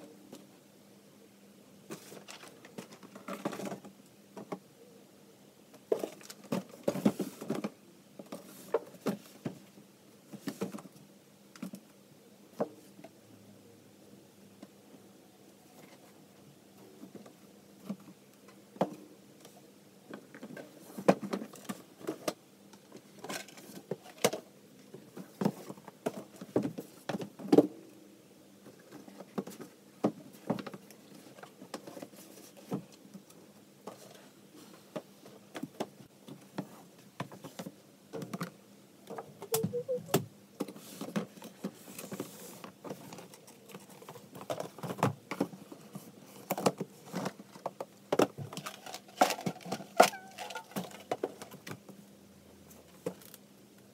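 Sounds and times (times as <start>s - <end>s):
brief squeak: 39.5s - 40.2s.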